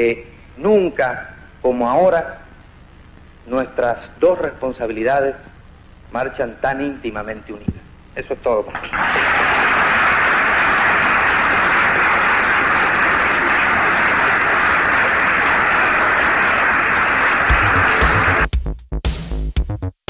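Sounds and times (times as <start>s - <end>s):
audience applauding: 8.7s - 18.5s.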